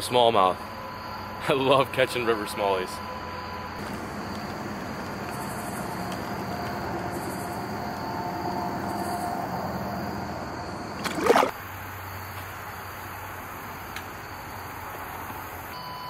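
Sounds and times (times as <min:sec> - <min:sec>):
fish splashing in water: 0:11.0 - 0:11.6.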